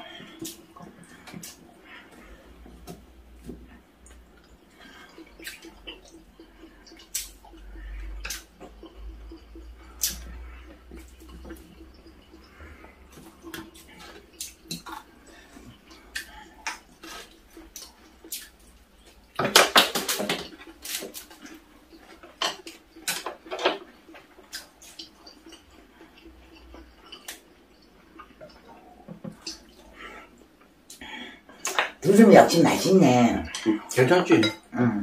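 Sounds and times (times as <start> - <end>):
utensils tapping against bowls: 19.3 - 29.7, 31.6 - 34.7.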